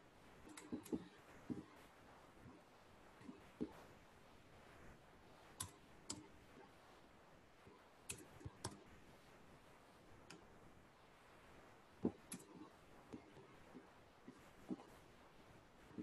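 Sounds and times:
mouse and keyboard clicks: 0.4s - 1.7s, 5.6s - 6.7s, 7.7s - 8.9s, 12.0s - 13.5s.

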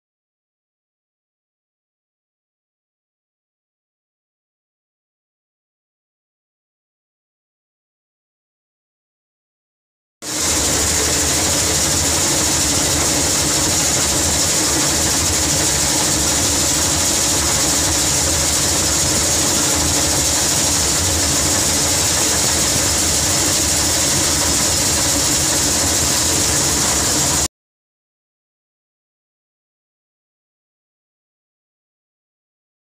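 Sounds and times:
combine harvester engine drone: 10.3s - 27.5s.

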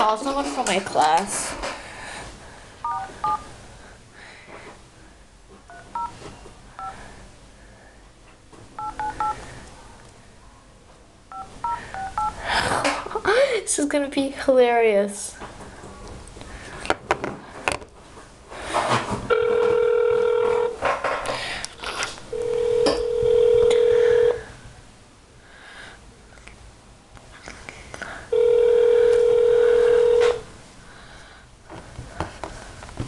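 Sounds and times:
telephone ringback tone: 2.8s - 3.4s, 5.7s - 6.1s, 8.8s - 9.4s, 11.3s - 12.4s, 19.3s - 20.8s, 22.3s - 24.4s, 28.3s - 30.4s.

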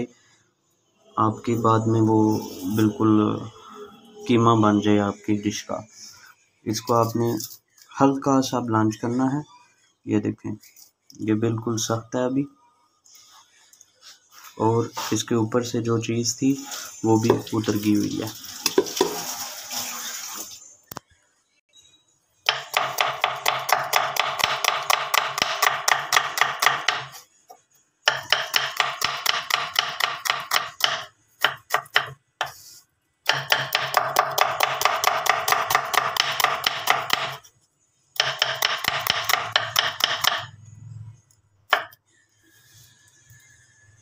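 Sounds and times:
knife slicing onion on wooden board: 22.5s - 37.5s, 38.2s - 40.5s.

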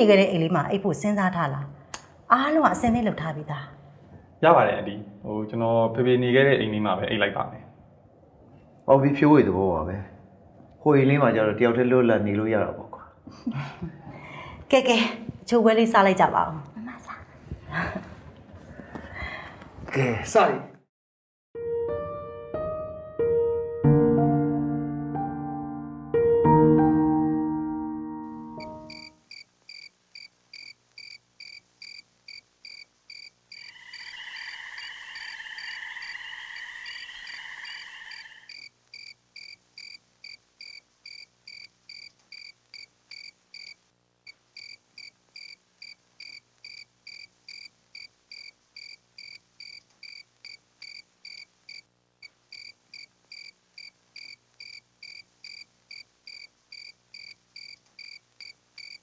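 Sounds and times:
cricket chirping: 28.6s - 59.0s
loud wavering call: 33.6s - 38.6s.

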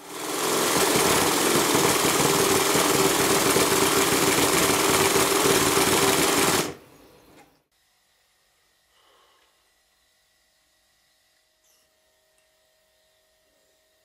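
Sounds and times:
model steam engine running: 0.0s - 6.8s.

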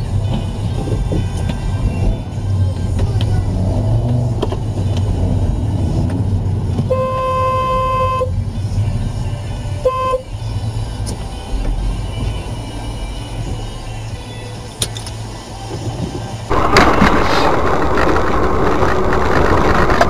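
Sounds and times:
low road rumble: 0.0s - 20.0s
car horn blasts: 6.8s - 8.4s, 9.8s - 10.3s.

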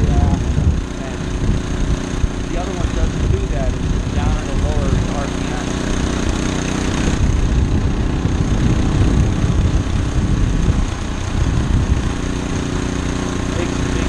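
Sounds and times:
small engine running: 0.0s - 14.0s.

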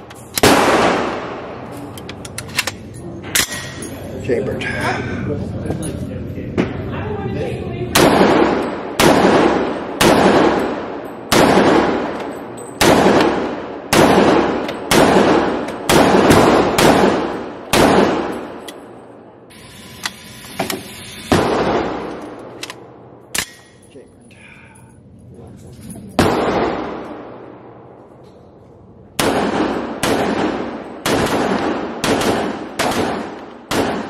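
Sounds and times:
gunshots echoing: 0.0s - 1.7s, 8.0s - 18.7s, 21.3s - 23.7s, 26.2s - 27.9s, 29.2s - 34.0s.

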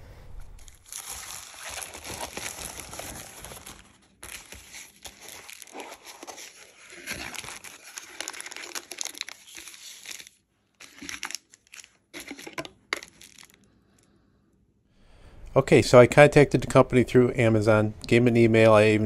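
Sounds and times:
plastic bag rustling: 0.4s - 13.6s
packaging crinkling and rustling: 0.6s - 13.7s.

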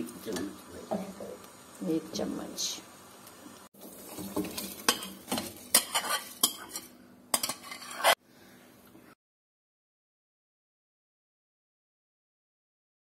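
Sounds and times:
utensil scraping and clinking: 4.1s - 8.2s.

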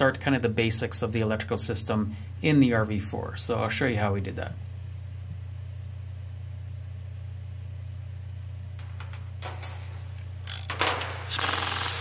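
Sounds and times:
steady low hum: 0.0s - 12.0s
short hissing bursts: 11.3s - 12.0s.

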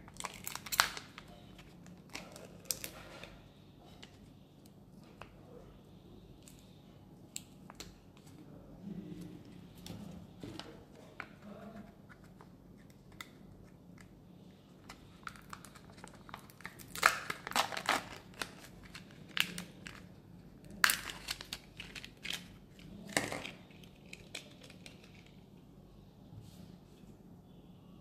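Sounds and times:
wrapping crinkling: 0.0s - 3.3s, 14.8s - 25.4s
plastic foil seal peeling: 0.0s - 3.4s, 14.8s - 25.4s.

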